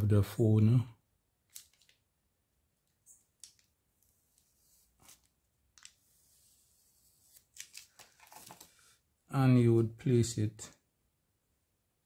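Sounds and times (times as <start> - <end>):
paper label peeling crinkles: 7.2 - 8.7.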